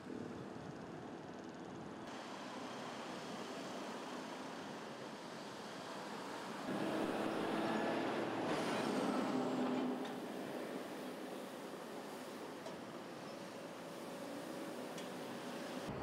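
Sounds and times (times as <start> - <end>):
road traffic rushing: 2.2 - 16.0
heavy truck driving by: 2.8 - 12.4.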